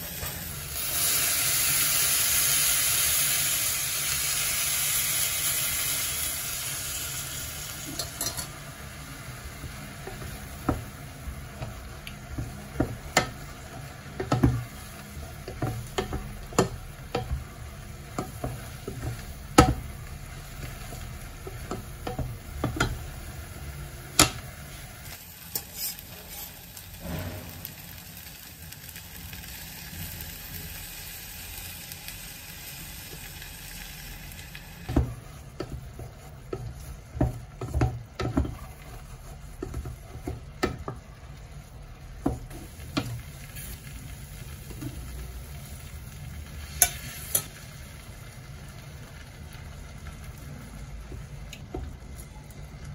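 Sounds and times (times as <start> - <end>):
rice sizzling in a pan: 0.0 - 52.9
wooden spatula knocking and scraping pan: 9.6 - 20.0, 20.6 - 23.2, 34.8 - 41.1, 42.2 - 43.2.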